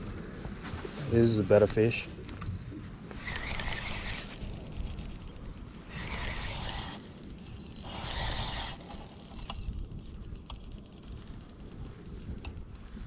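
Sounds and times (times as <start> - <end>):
faint ticks: 0.0 - 7.9, 8.5 - 13.0
fishing reel running: 0.0 - 13.0
wind rumbling on microphone: 0.0 - 13.0.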